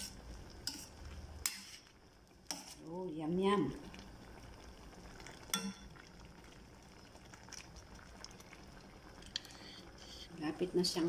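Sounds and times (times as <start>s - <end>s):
broth bubbling in pan: 0.0s - 11.0s
spoon clinking in pan: 5.5s - 5.9s.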